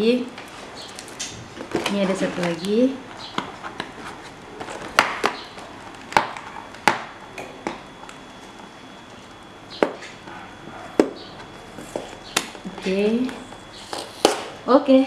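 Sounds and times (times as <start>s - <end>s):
cardboard rubbing and handling: 3.2s - 5.0s.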